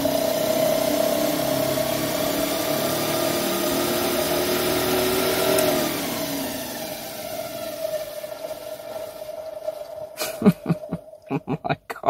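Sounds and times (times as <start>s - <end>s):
blower fan motor whine: 0.0s - 11.4s
low climbing tone: 5.5s - 12.0s.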